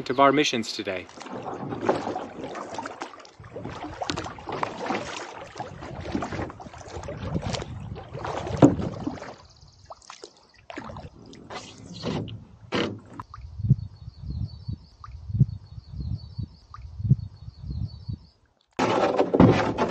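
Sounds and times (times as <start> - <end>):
water splashing and dripping: 0.5 - 12.4, 13.0 - 13.6
canoe paddle strokes in water: 0.9 - 13.2.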